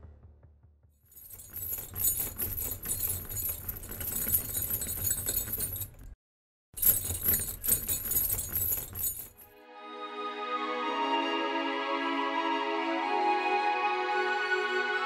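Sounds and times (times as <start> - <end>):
metal chains rattling: 1.1 - 6.2, 6.8 - 9.5.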